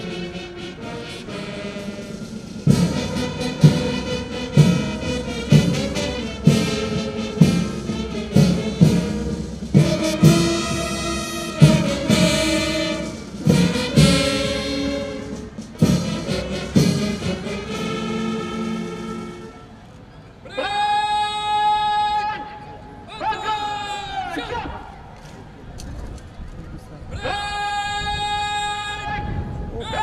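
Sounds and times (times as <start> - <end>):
brass band playing a march: 0.0 - 20.1.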